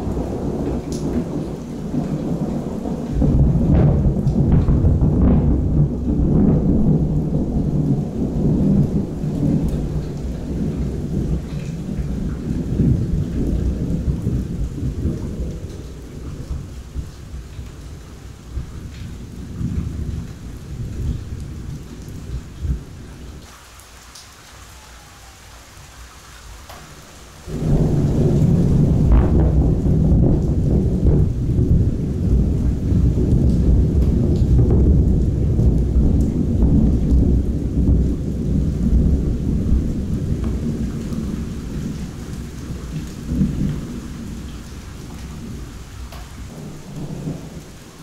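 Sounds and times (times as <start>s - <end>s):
thunder rumbling: 0.0s - 23.5s, 26.5s - 48.0s
steady falling rain: 0.0s - 48.0s.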